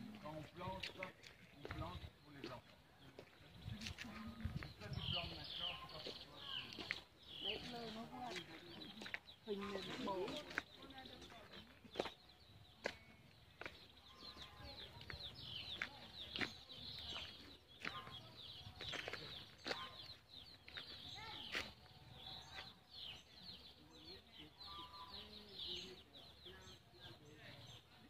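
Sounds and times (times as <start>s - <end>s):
birds chirping: 0.0s - 28.0s
footsteps on dry leaves: 5.8s - 12.2s, 13.6s - 22.0s.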